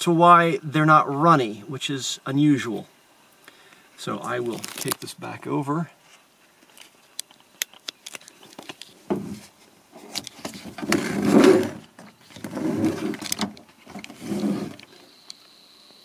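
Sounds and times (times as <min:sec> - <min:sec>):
rubbing against microphone: 0:08.9 - 0:13.3, 0:13.9 - 0:15.0.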